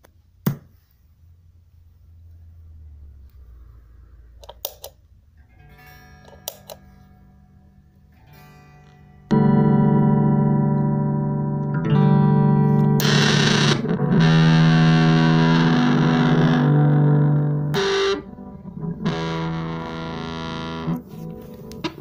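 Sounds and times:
distorted electric guitar chords: 0:05.4 - 0:22.0.

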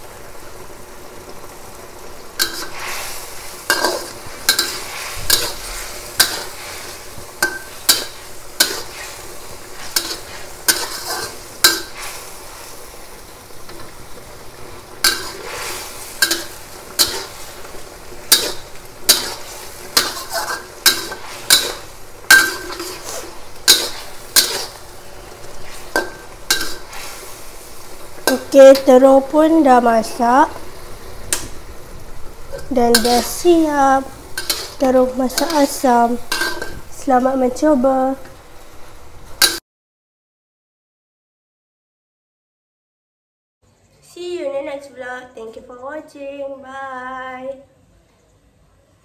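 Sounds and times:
food sizzling: 0:00.0 - 0:39.6
metal spatula scraping a wok: 0:02.4 - 0:12.8, 0:15.0 - 0:29.0, 0:32.4 - 0:37.1, 0:39.4 - 0:39.6.

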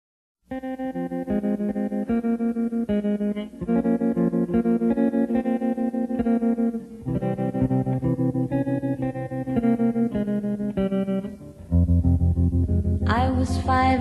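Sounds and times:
pulsing electric guitar notes: 0:00.5 - 0:14.0
bass: 0:11.5 - 0:14.0.

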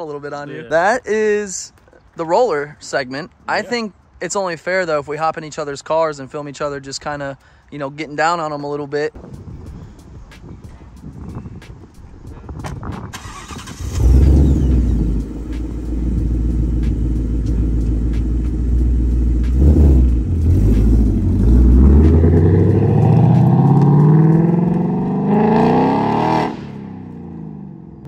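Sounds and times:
car engine rumbling and revving: 0:12.6 - 0:28.0
car accelerating away: 0:13.2 - 0:27.9.

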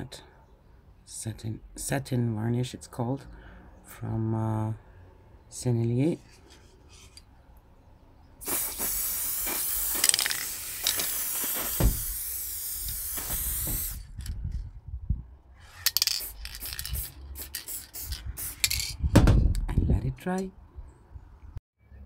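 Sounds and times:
aerosol spray can hissing: 0:08.4 - 0:14.1, 0:16.0 - 0:18.7.

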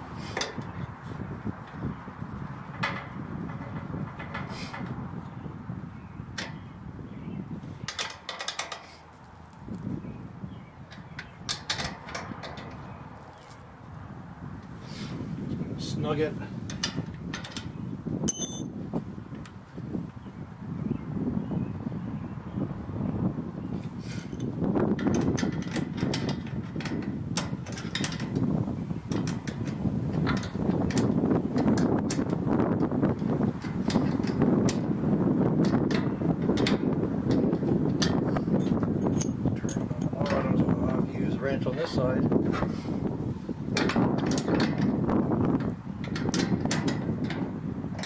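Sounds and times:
low steady background rumble: 0:00.0 - 0:48.0
metal clicks of bolt and wrench: 0:07.9 - 0:08.9, 0:10.9 - 0:12.8, 0:18.3 - 0:18.7, 0:24.2 - 0:28.4, 0:29.1 - 0:32.9, 0:35.6 - 0:40.5, 0:43.8 - 0:45.0, 0:45.6 - 0:48.0.

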